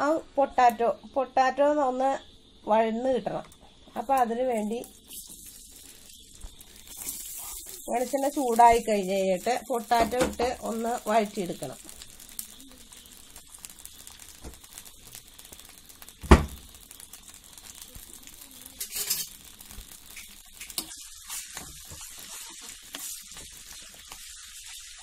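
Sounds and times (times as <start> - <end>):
potatoes sizzling in pan: 0.0 - 25.0
spoon stirring potatoes: 17.6 - 24.9.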